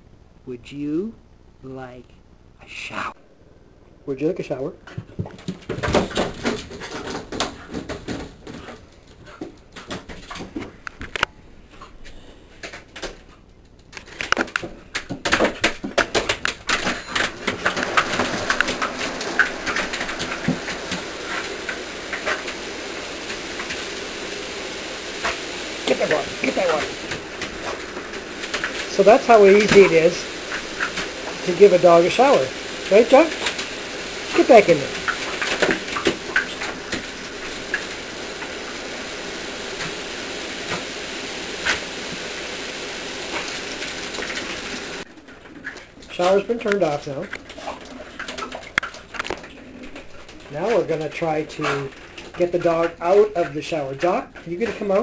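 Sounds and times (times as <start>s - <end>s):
shower water spraying: 15.3s - 55.0s.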